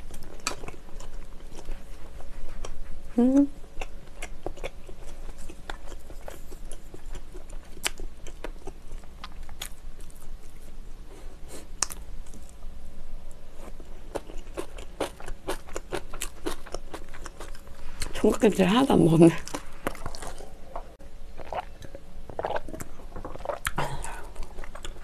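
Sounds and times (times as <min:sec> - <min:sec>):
person chewing food: 0:00.0 - 0:03.0, 0:03.7 - 0:12.6, 0:13.5 - 0:18.2, 0:19.4 - 0:25.0.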